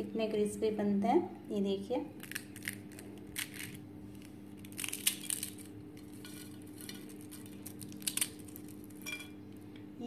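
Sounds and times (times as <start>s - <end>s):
flakes falling on glass plate: 2.4s - 9.4s.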